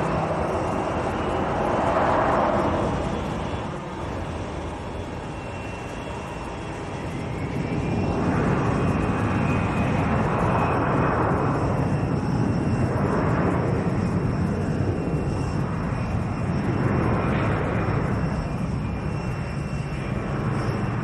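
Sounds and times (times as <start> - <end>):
jet engine rumble and whine: 0.0 - 21.0.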